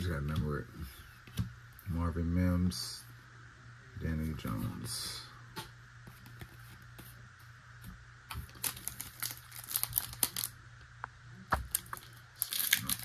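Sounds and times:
card pack wrapper crinkling: 8.3 - 10.6, 11.6 - 13.0.

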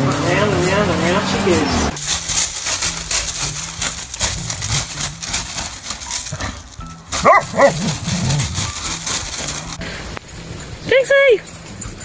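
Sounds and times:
scratchy scuffing: 0.0 - 9.8
dog whining: 5.7 - 9.8
dog barking: 7.2 - 8.6.

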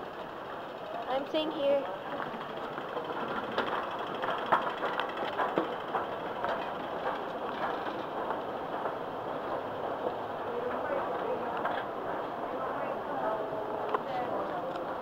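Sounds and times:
mechanical running noise: 0.0 - 11.1.

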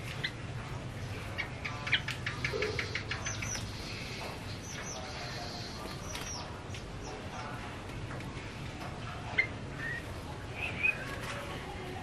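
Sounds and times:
bird chirping: 1.1 - 7.6, 9.3 - 11.2.

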